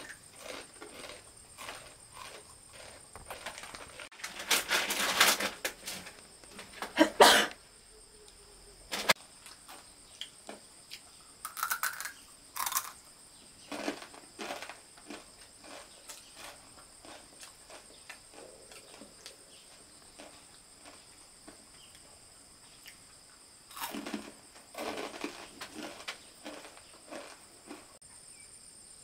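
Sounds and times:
rustling and crunching: 0.0 - 7.4, 8.9 - 13.0, 13.6 - 22.0, 23.7 - 28.0
high insect buzz: 7.0 - 18.3.

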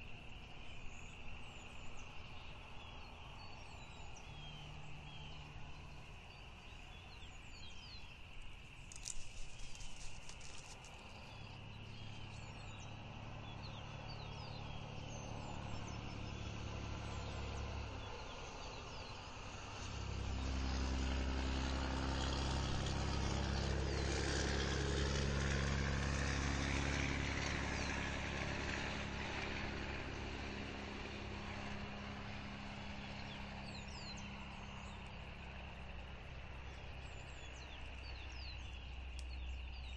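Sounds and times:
small birds chirping: 0.0 - 19.9, 27.4 - 39.9
passing vehicle engine hum: 8.2 - 39.9.

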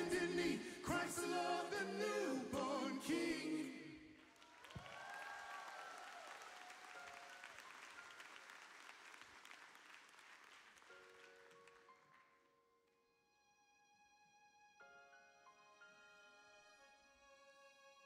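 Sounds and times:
faint applause: 4.2 - 12.2.

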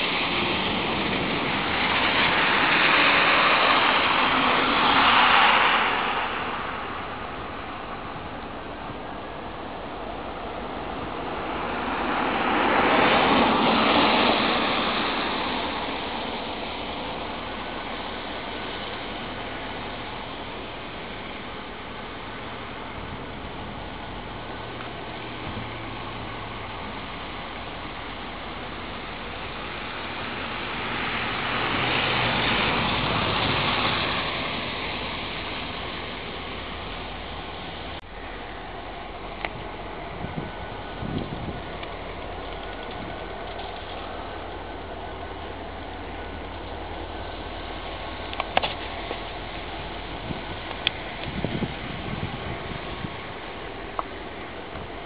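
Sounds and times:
diesel locomotive rumble: 0.0 - 55.0
loud hiss: 0.0 - 55.0
vehicle passing by: 0.0 - 55.0.

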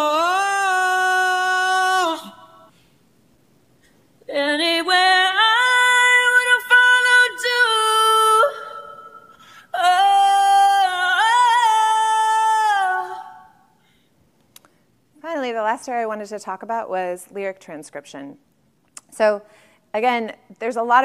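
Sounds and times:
woman singing: 0.0 - 2.7, 4.3 - 13.7.

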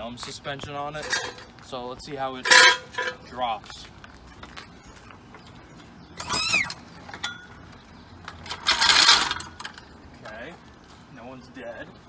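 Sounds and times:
loud creaking squeal: 6.2 - 6.8.

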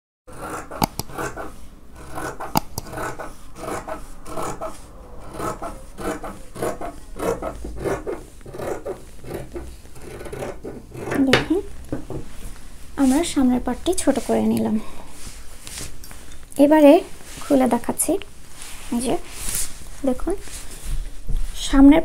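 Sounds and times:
scissors snipping cloth: 0.5 - 1.4, 2.0 - 3.8.

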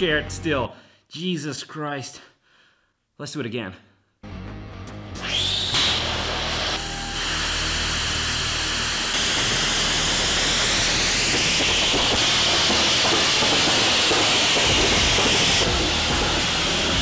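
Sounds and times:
rocket engine hissing jet: 5.3 - 17.0.

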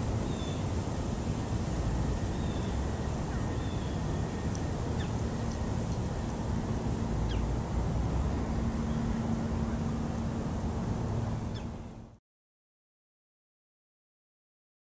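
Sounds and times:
low steady hum: 0.0 - 12.2
bird chirps: 5.0 - 5.2, 7.2 - 7.5, 11.5 - 12.0.

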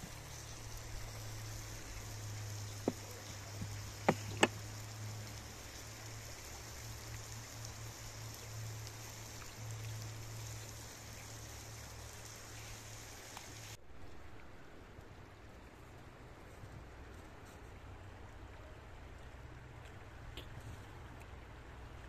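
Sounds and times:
faint steady hiss: 0.0 - 22.0
blade knocking wooden board: 2.8 - 4.6.

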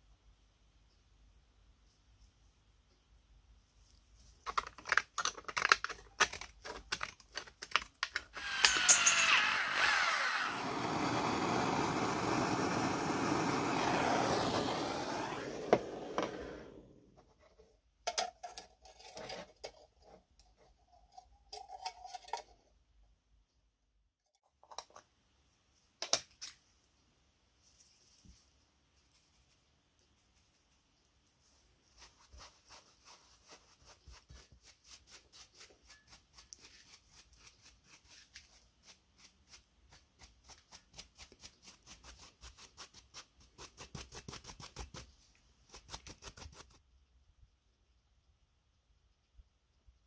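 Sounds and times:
steel parts clinking on metal: 8.3 - 9.4.

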